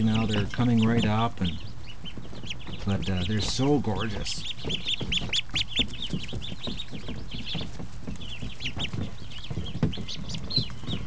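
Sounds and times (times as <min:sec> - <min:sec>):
ducklings peeping: 0:00.0 - 0:11.0
rustling: 0:00.0 - 0:11.0
soft low knocks: 0:00.0 - 0:11.0.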